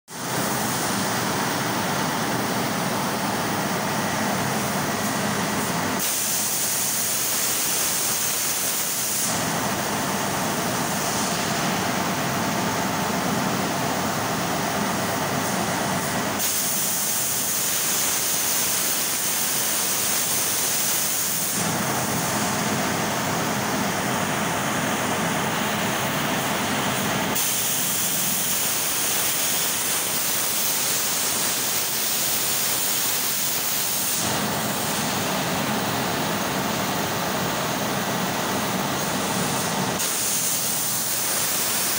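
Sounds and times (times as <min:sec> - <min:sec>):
machine cutting sheet steel hiss: 0:00.2 - 0:01.2, 0:04.9 - 0:12.2, 0:15.3 - 0:23.0, 0:26.5 - 0:37.8, 0:38.8 - 0:41.9.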